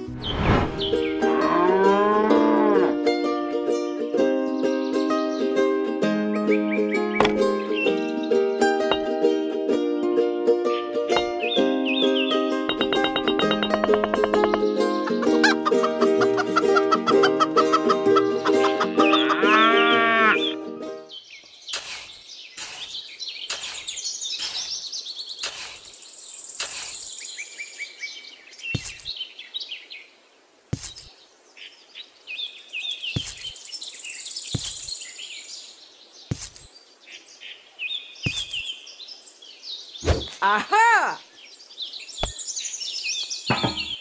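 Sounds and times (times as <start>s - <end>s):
small birds chirping: 0.0s - 2.2s, 6.3s - 9.3s, 10.7s - 44.0s
cow mooing: 1.2s - 3.0s, 19.2s - 20.4s
short knocks: 43.5s - 44.0s.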